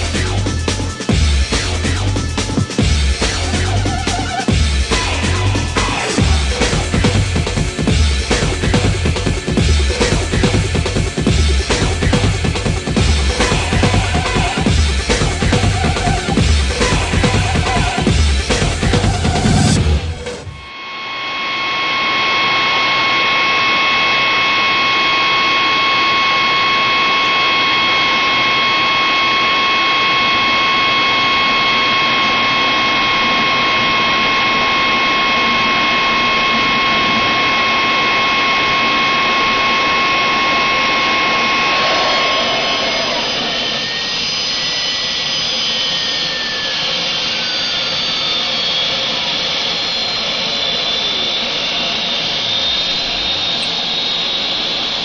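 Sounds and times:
high whines: 0.0s - 55.0s
loud rush of air: 39.2s - 44.7s.

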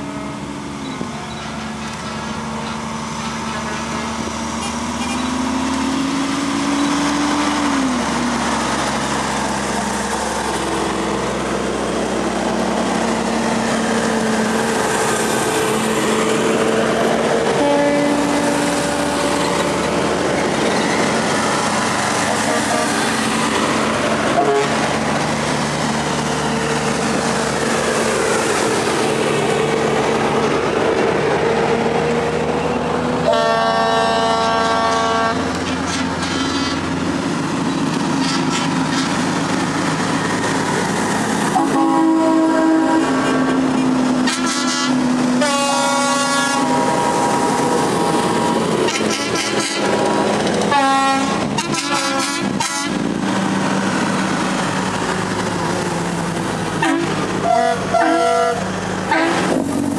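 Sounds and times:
diesel trucks driving past: 0.0s - 59.9s
multi-note air horns: 17.6s - 18.5s, 22.3s - 23.1s, 24.4s - 24.8s, 33.2s - 35.4s, 41.5s - 43.2s, 44.2s - 47.0s, 48.9s - 49.9s, 50.7s - 53.0s, 56.8s - 59.5s.

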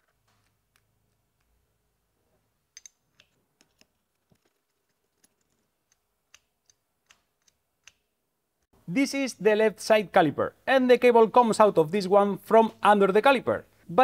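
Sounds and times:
small metallic clicks and taps: 2.8s - 8.0s.

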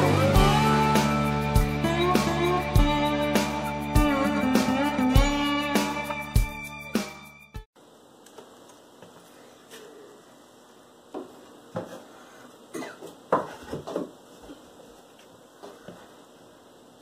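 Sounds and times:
guitar music: 0.0s - 7.6s.

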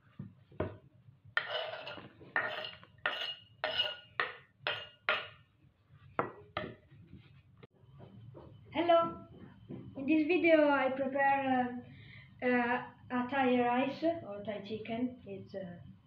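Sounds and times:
scraping on wooden cutting board: 1.4s - 4.1s.

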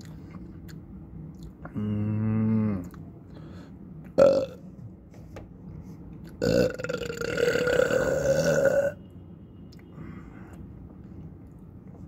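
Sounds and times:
man belching: 4.2s - 4.6s, 6.4s - 9.0s.

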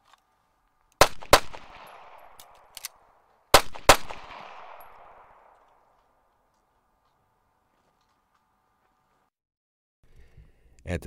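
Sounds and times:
pistol shots with echo: 1.0s - 5.9s
metallic magazine reload clicks: 1.8s - 3.1s.

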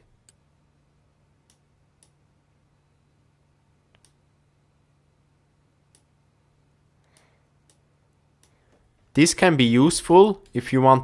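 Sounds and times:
faint low hum: 0.0s - 11.0s
computer mouse clicks: 3.9s - 4.2s, 5.9s - 6.1s.

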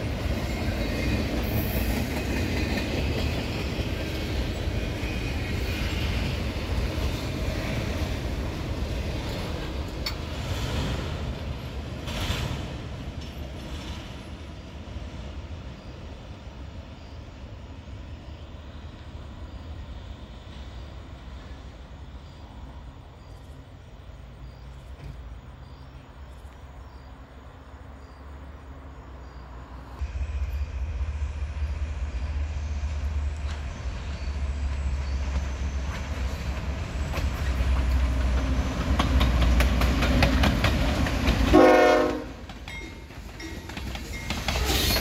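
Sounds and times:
train wheels clicking: 0.0s - 14.5s, 30.4s - 45.0s
freight cars rolling past: 0.0s - 17.6s, 18.2s - 45.0s
distant train rumble: 0.0s - 45.0s.

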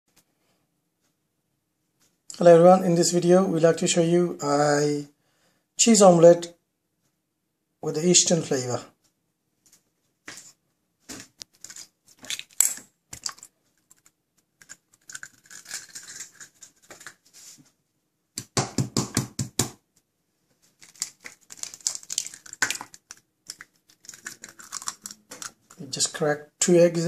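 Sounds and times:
eggs cracking on a steel bowl: 11.5s - 17.2s, 20.8s - 25.9s.

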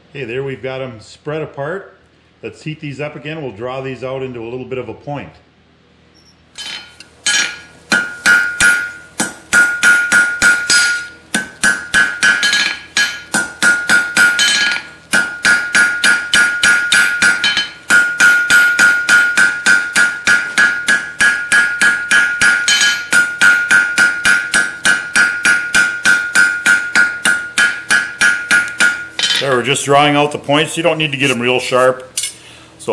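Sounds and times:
hammer striking steel on anvil: 6.6s - 29.6s, 32.2s - 32.4s.

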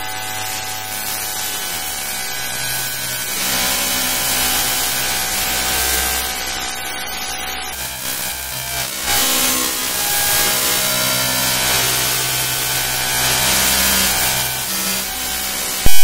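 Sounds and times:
harsh electronic noise with tones: 0.0s - 16.0s.

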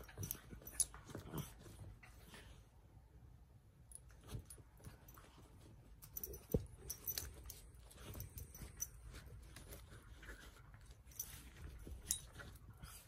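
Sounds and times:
knocks and thumps of paws: 4.1s - 10.5s.

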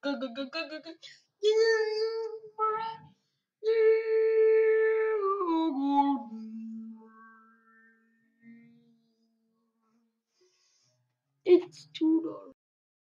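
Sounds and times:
logo jingle of sustained notes: 6.4s - 10.0s.

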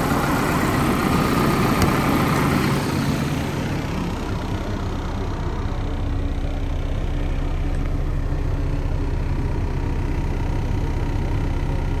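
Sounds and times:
truck engine idling: 0.0s - 12.0s.

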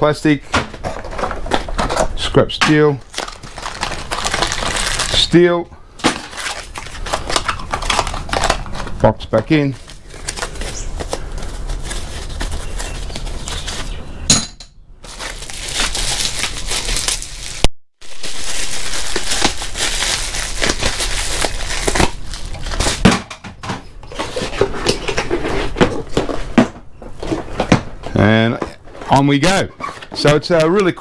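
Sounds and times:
plastic packaging crinkling: 0.8s - 14.0s, 15.0s - 23.2s.

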